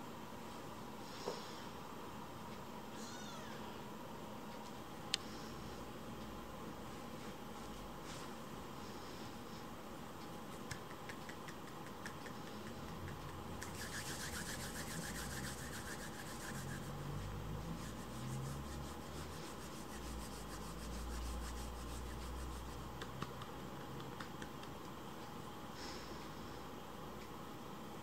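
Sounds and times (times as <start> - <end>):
rapid scratching rasp: 10.6 - 23.5.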